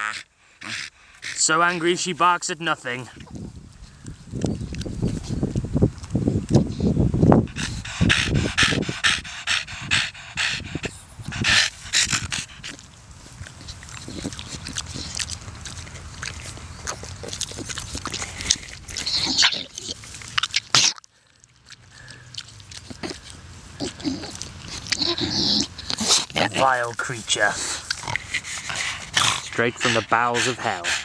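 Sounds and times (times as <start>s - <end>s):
dog panting: 0.1s - 2.1s, 6.6s - 20.2s, 21.8s - 31.0s
dog breathing irregularly: 0.1s - 2.4s, 3.1s - 20.4s, 21.2s - 31.0s.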